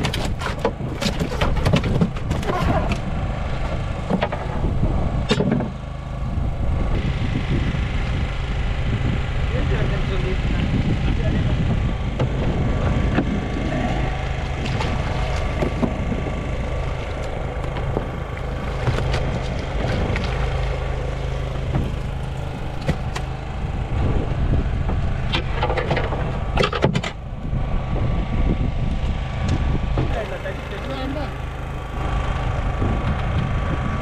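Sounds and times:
fish knocking against hull: 0:00.0 - 0:04.6, 0:14.2 - 0:16.3, 0:17.0 - 0:20.8, 0:21.6 - 0:23.3
boat engine running: 0:00.0 - 0:34.0
water splashing: 0:13.3 - 0:23.4.

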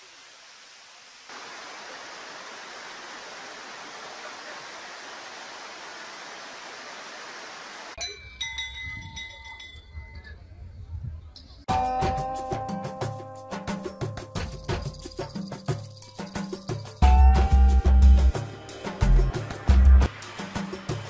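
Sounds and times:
waterfall rushing: 0:00.0 - 0:08.0
music with bell-like notes: 0:08.0 - 0:10.5, 0:11.7 - 0:20.4.

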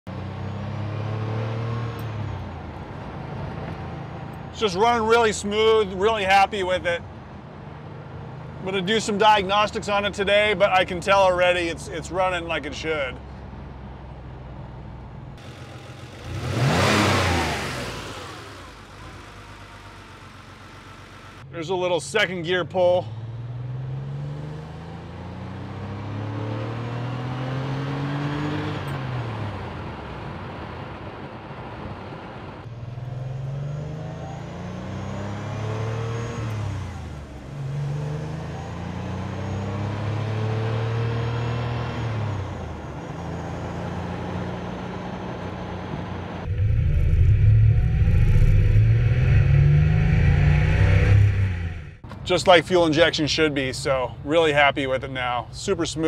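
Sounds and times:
car engine accelerating through gears: 0:00.1 - 0:04.4, 0:15.4 - 0:21.4, 0:23.1 - 0:29.9, 0:32.6 - 0:52.1.

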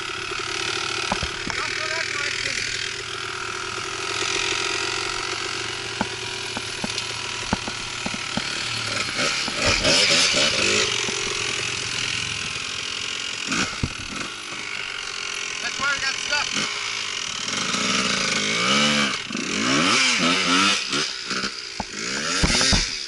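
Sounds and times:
dirt bike engine running: 0:00.0 - 0:23.0
knocks over bumps: 0:01.0 - 0:01.6, 0:06.0 - 0:10.3, 0:13.6 - 0:14.2, 0:21.8 - 0:23.0.

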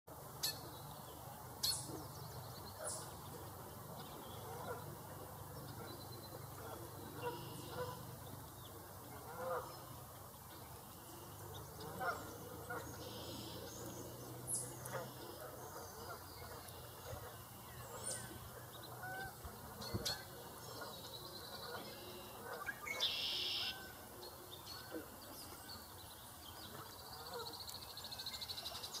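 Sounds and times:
ducks calling: 0:06.5 - 0:08.4, 0:09.0 - 0:10.2, 0:11.5 - 0:24.0.

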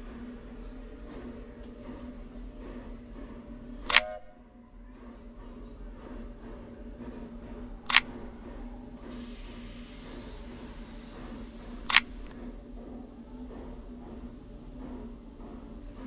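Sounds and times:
camera shutter clicks: 0:03.9 - 0:04.3, 0:07.9 - 0:08.3, 0:11.9 - 0:12.3
hiss: 0:05.0 - 0:12.6, 0:15.4 - 0:16.0
steady low hum: 0:06.0 - 0:09.1, 0:10.0 - 0:15.7.

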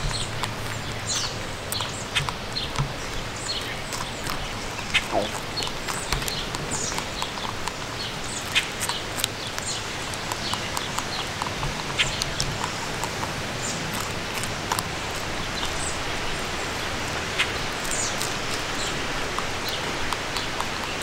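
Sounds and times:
rabbit chewing: 0:00.0 - 0:21.0.

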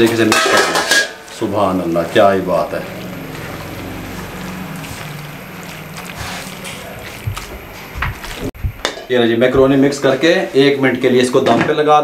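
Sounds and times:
spatula stirring pasta in a wok: 0:01.3 - 0:07.5.

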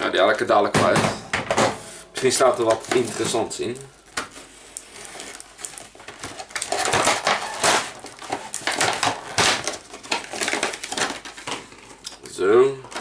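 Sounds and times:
cardboard rustling and scraping: 0:02.2 - 0:12.0.

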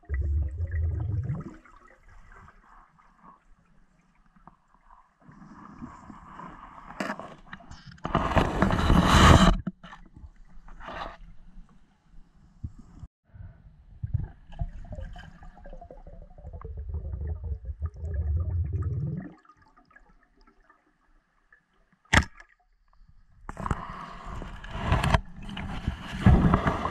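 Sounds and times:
muffled underwater bubbling rumble: 0:00.0 - 0:01.6, 0:14.0 - 0:19.6.

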